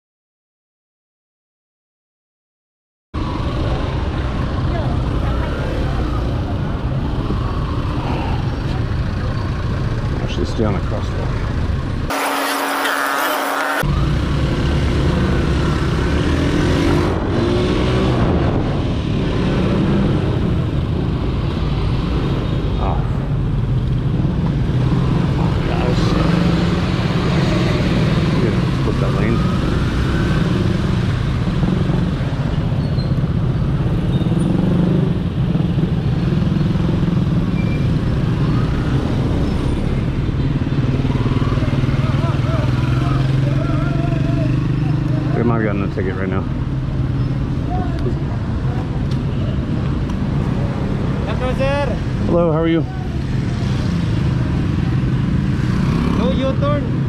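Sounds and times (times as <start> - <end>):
traffic engines: 3.2 - 57.0
wind rushing over microphone: 16.3 - 22.7.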